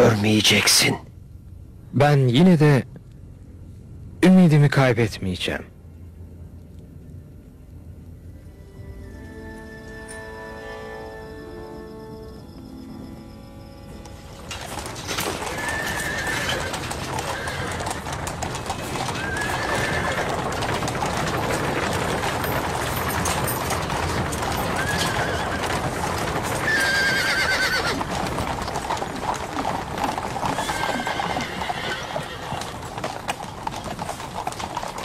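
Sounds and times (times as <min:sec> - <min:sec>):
hooves clattering: 0:13.8 - 0:35.0
horses whinnying: 0:14.4 - 0:35.0.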